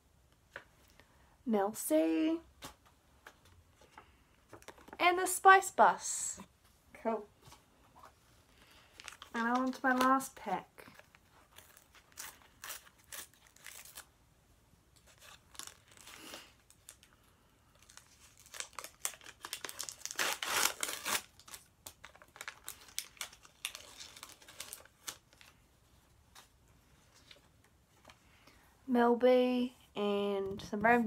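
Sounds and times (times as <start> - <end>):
paper wrapper tearing and crumpling: 8.7 - 14.1, 15.0 - 17.1, 17.8 - 25.6.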